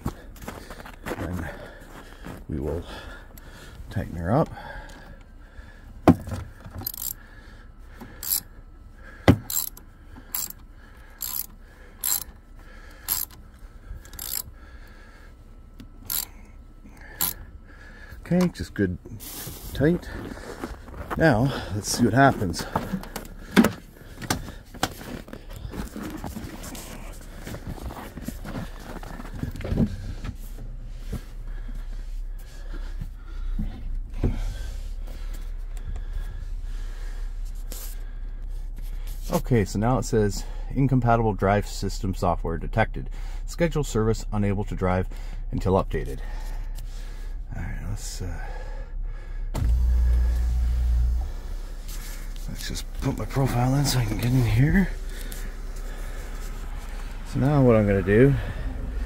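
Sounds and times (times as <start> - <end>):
low steady hum: 0.0 - 59.0
socket ratchet clicking: 6.8 - 7.2, 8.2 - 8.4, 9.5 - 10.6, 11.2 - 12.4, 13.0 - 13.4, 14.1 - 14.5, 16.0 - 16.3, 17.2 - 17.4
rustling in car seat: 22.0 - 35.6, 49.6 - 59.0.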